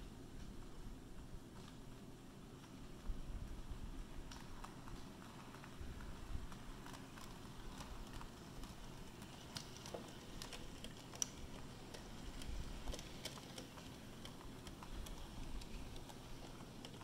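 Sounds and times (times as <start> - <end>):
faint low rumble: 0.0 - 8.9
model train wheels clicking: 4.2 - 17.0.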